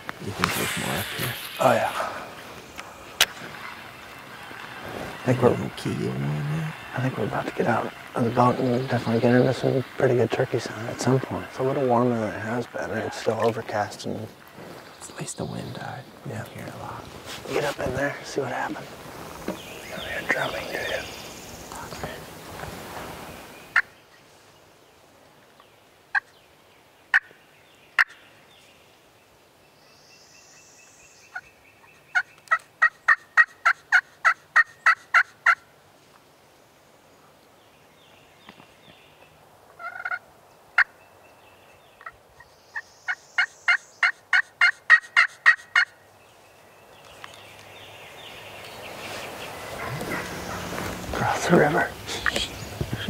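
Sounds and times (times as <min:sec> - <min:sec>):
turkey yelping: 0:32.5 - 0:35.6, 0:39.8 - 0:40.2, 0:43.4 - 0:45.9, 0:49.6 - 0:51.1.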